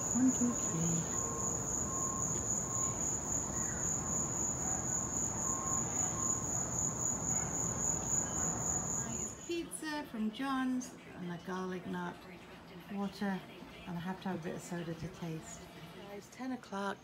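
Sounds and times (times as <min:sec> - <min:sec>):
crickets trilling: 0:00.0 - 0:09.5
faint lower chirp: 0:00.0 - 0:09.5.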